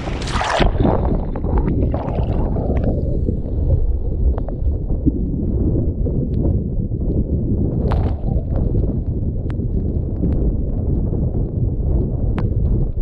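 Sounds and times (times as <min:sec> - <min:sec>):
water rushing and gurgling: 0:00.0 - 0:05.2
low rumble: 0:00.0 - 0:13.0.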